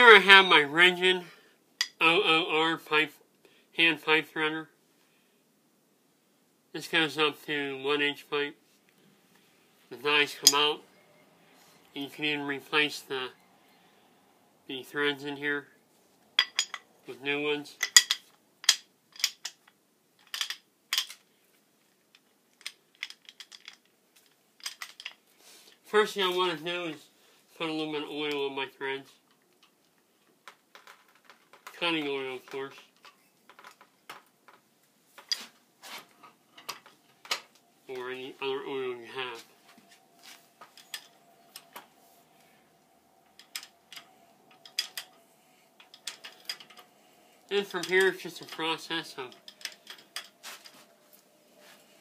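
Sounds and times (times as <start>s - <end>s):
metallic clacks of pipe threader: 43.3s - 45.2s, 45.8s - 46.9s, 47.5s - 50.9s.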